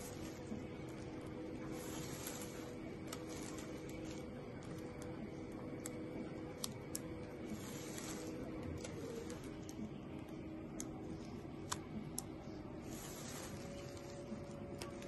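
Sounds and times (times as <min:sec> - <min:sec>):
gloved hands rustling gauze: 0:00.0 - 0:05.0, 0:07.4 - 0:09.8, 0:12.8 - 0:15.0
low electrical hum: 0:00.0 - 0:15.0.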